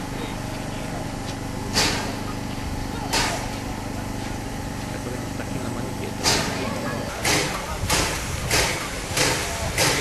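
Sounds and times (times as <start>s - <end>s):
steady mechanical drone: 0.0s - 10.0s
sharp steam hiss bursts: 7.1s - 10.0s.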